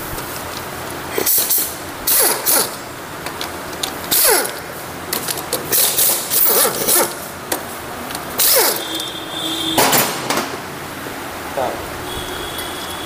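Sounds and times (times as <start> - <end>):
wrench clicking and rattling: 0.5 - 8.8.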